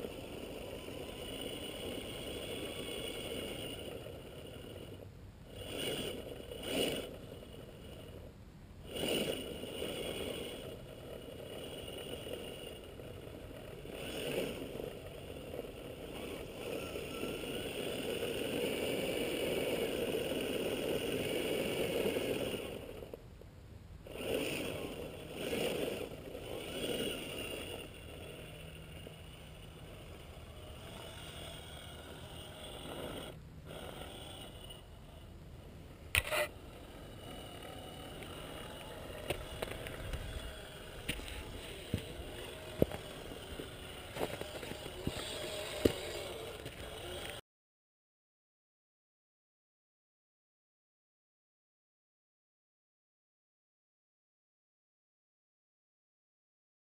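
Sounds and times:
electric motor whining: 0.0 - 23.2, 24.0 - 47.4
tyres scraping on rock: 36.1 - 47.4.

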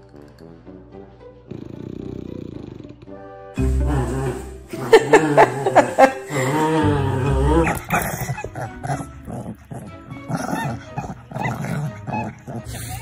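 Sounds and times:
dog yipping and whining: 10.4 - 13.0.

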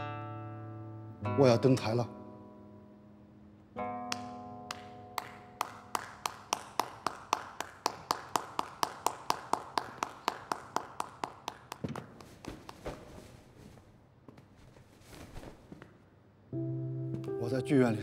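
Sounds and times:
person clapping slowly: 4.0 - 12.9.

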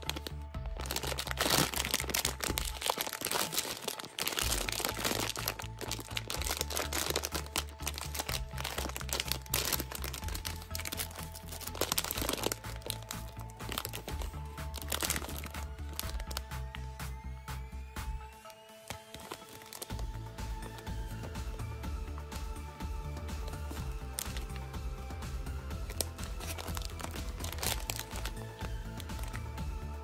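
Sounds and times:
plastic bag crinkling: 0.0 - 16.7, 18.8 - 20.1, 23.4 - 24.7, 25.7 - 29.5
light background music: 0.0 - 30.0.

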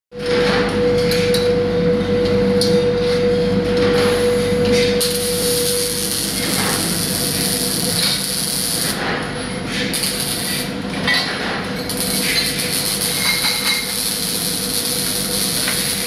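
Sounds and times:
workshop hum: 0.1 - 16.0
welding arc crackling hiss: 5.0 - 9.0, 9.8 - 10.8, 11.7 - 16.0.

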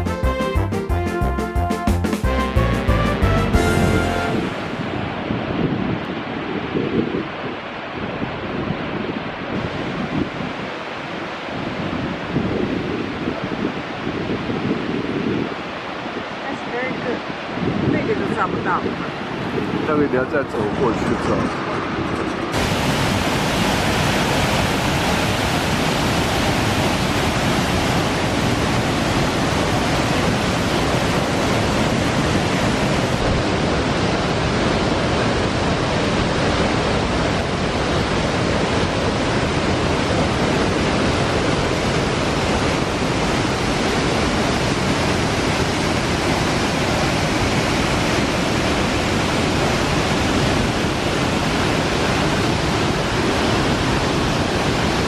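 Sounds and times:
waterfall rushing: 2.2 - 5.8, 15.5 - 55.0.

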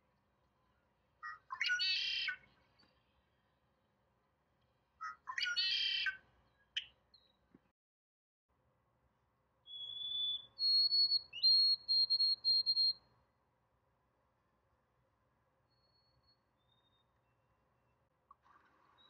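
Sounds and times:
clear whistled bird song: 1.2 - 3.2, 5.0 - 7.4, 9.6 - 13.1, 15.7 - 18.0
buzzy bird song: 9.7 - 13.0, 15.7 - 18.1.

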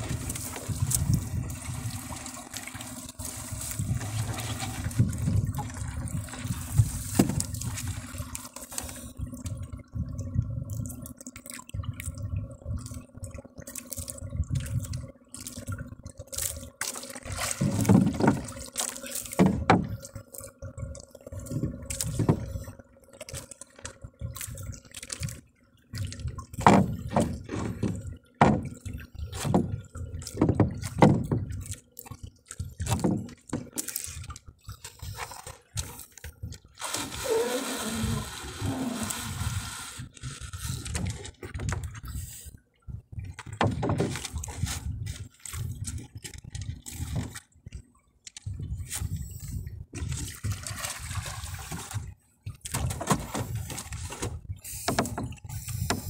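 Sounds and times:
water splashing against boat: 0.0 - 56.0
knocks and rubbing of fishing line: 52.7 - 56.0.

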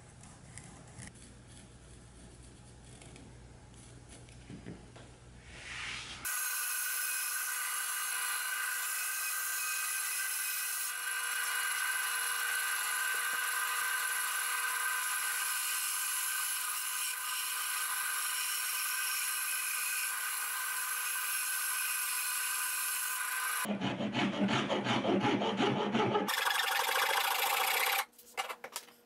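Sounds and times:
band saw cutting wood: 6.2 - 28.1.

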